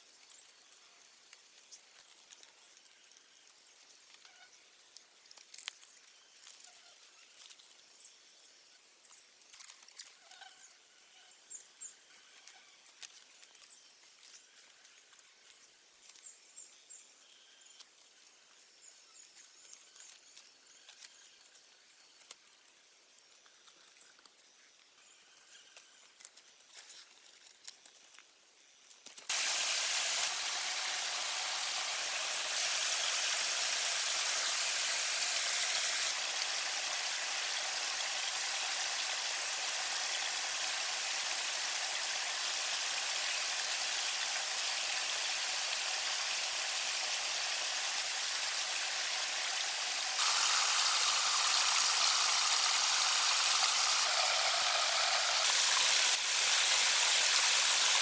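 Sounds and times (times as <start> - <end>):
bamboo strips clicking and rustling: 0.0 - 7.9, 9.2 - 10.2, 12.3 - 16.4, 19.2 - 24.9, 25.6 - 58.0
waterfall rushing: 29.3 - 58.0.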